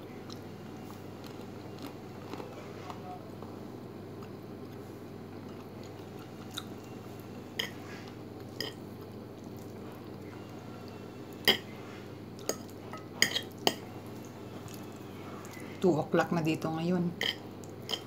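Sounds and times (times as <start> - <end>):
steady low hum: 0.0 - 18.0
chewing: 0.1 - 3.5, 4.1 - 10.5, 12.4 - 15.8, 17.2 - 18.0.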